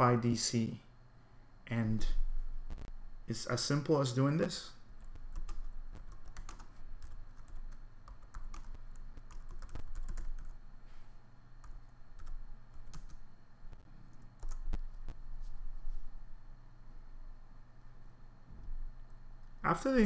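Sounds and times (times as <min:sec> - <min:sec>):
faint low hum: 0:00.0 - 0:20.0.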